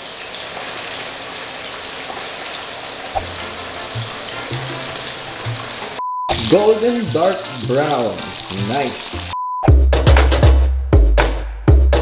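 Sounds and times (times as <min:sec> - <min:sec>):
chicken deep-frying in oil: 0:00.0 - 0:09.4
low bass music: 0:06.3 - 0:12.0.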